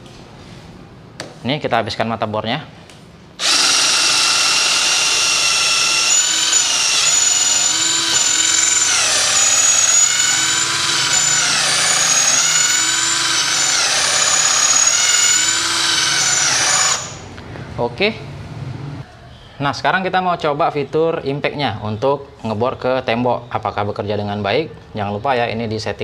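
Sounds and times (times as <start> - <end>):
cordless drill boring into wood: 3.4 - 17.3.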